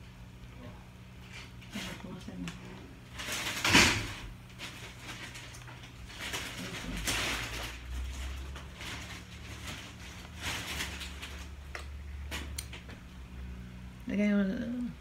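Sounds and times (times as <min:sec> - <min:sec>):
plastic packaging rustling: 0:03.0 - 0:12.9.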